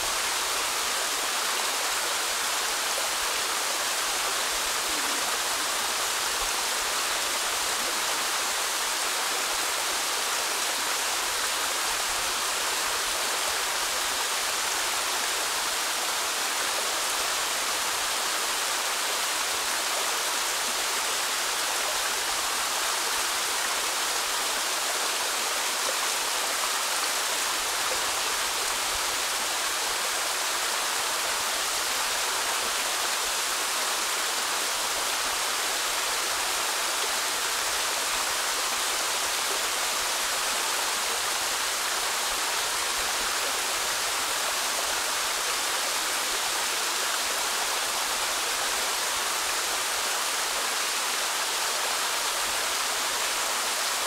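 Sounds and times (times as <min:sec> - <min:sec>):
stream rushing over boulders: 0:00.0 - 0:54.0.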